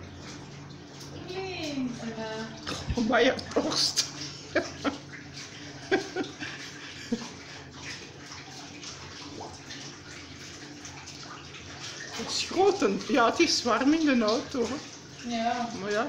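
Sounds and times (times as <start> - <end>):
water spraying over car window: 12.0 - 16.0.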